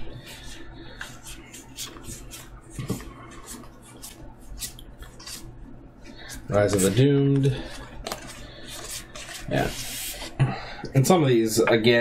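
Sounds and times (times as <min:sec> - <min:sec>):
cards flicking and rustling: 0:06.7 - 0:09.8.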